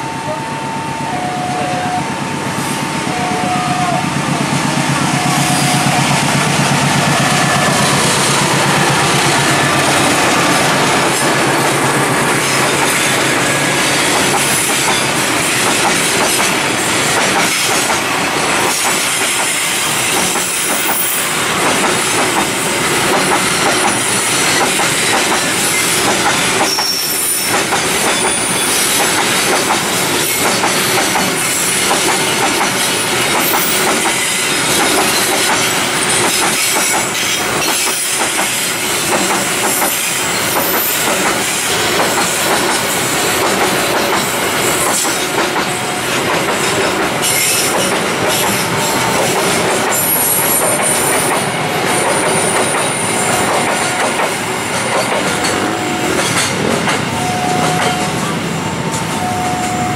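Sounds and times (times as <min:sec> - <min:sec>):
freight train rumbling past: 0:00.0 - 0:59.9
high-pitched wheel squeal: 0:26.6 - 0:27.6.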